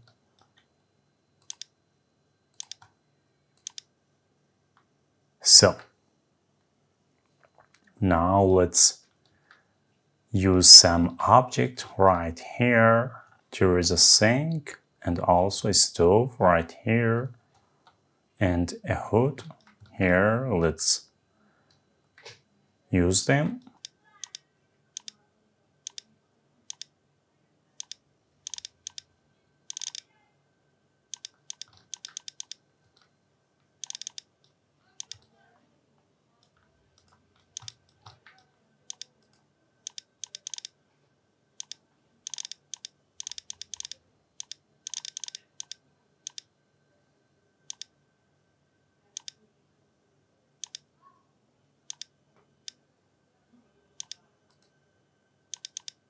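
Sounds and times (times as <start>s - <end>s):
faint steady hum: 0.0s - 56.0s
mouse clicks: 25.0s - 25.2s, 25.9s - 26.1s, 26.7s - 26.9s, 27.8s - 29.1s, 29.7s - 30.0s, 31.1s - 33.1s, 33.8s - 35.3s, 36.4s - 40.7s, 41.6s - 46.5s, 47.7s - 47.9s, 49.2s - 49.4s, 50.6s - 50.9s, 51.9s - 52.1s, 54.0s - 54.7s, 55.5s - 56.0s
keyboard key presses: 31.2s - 33.0s, 36.4s - 40.7s, 55.6s - 56.0s.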